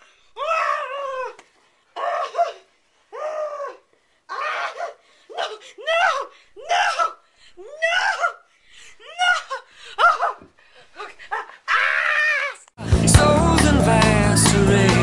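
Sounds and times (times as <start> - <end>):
music: 12.8 - 15.0.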